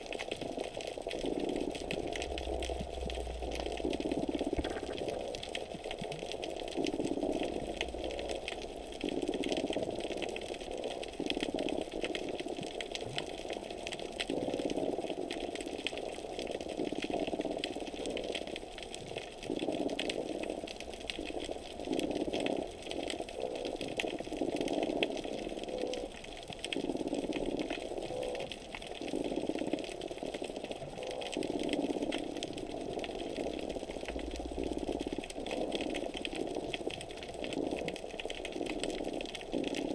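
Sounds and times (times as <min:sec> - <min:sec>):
underwater crackle: 0:00.0 - 0:39.9
low underwater rumble: 0:00.3 - 0:12.0.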